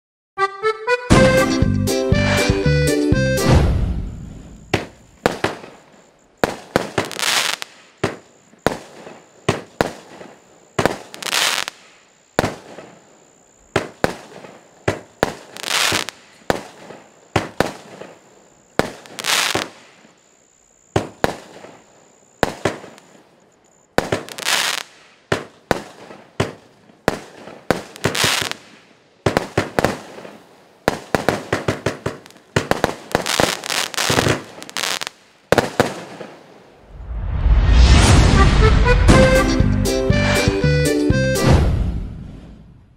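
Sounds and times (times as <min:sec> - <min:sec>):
fireworks bangs: 0:03.4 - 0:20.2, 0:20.9 - 0:23.2, 0:24.0 - 0:39.7
fireworks crackling: 0:03.5 - 0:20.2, 0:21.0 - 0:23.2, 0:24.0 - 0:40.5.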